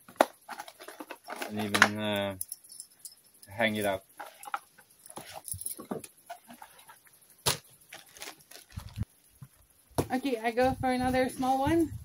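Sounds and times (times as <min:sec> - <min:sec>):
packaging rustling and clicking: 0:00.1 - 0:02.0, 0:07.5 - 0:09.0.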